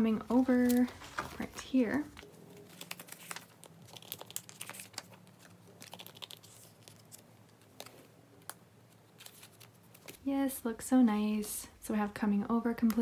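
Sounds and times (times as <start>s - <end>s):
plastic sleeves crinkling: 0.1s - 10.3s.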